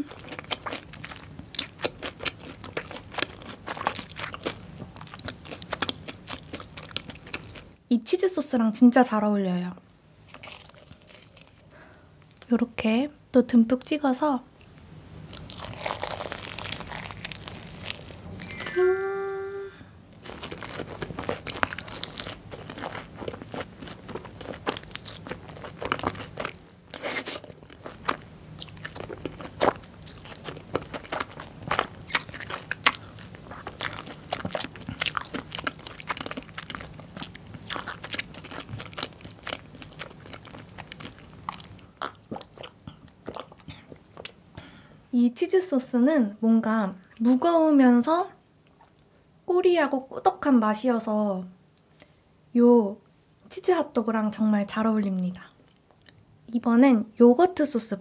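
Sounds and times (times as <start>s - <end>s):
chewing with small crunches: 0.0s - 7.8s, 10.2s - 12.5s, 20.2s - 44.4s, 55.2s - 56.2s
crunching bites into fried coating: 10.2s - 12.5s, 14.6s - 18.2s, 20.2s - 43.6s
short steady pitched tone: 18.4s - 20.0s.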